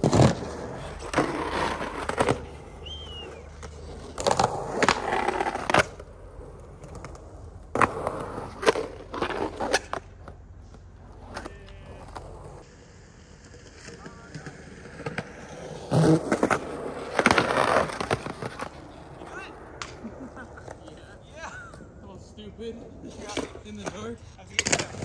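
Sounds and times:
skateboard grinding on concrete: 0.0s - 25.0s
wheels rolling on concrete: 0.0s - 25.0s
skateboard clacks on curb: 23.2s - 25.0s.

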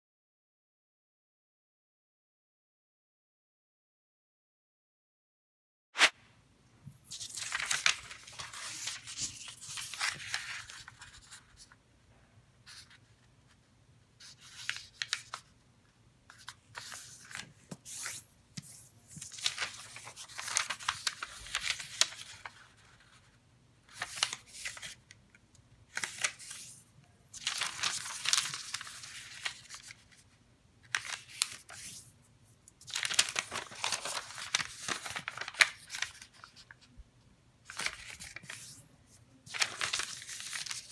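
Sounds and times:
paper rustling and creasing: 6.8s - 11.8s, 16.3s - 23.3s, 23.9s - 25.0s, 25.9s - 30.3s, 30.9s - 32.1s, 32.8s - 36.9s, 37.7s - 40.9s.

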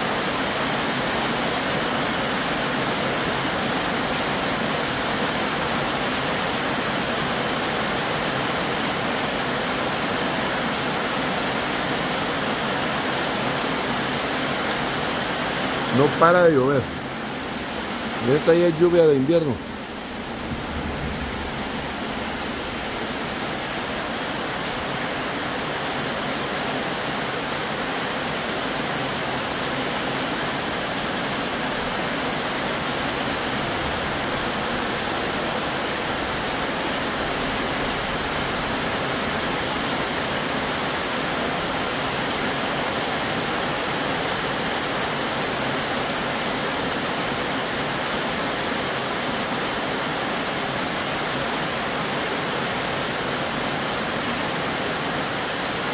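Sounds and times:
heavy rain on metal roof: 0.0s - 55.9s.

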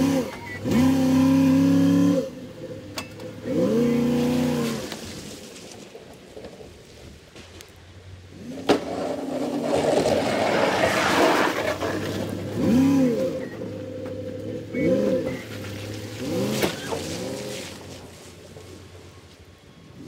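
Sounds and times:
truck engine revving: 0.0s - 5.2s, 8.2s - 18.7s
plow blade scraping snow: 0.0s - 20.0s.

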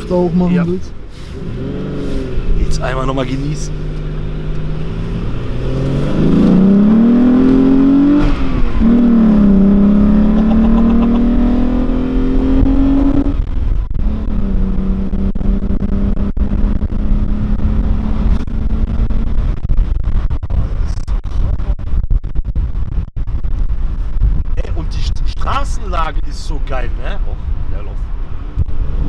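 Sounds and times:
car engine revving through gears: 1.2s - 19.6s, 28.4s - 29.0s.

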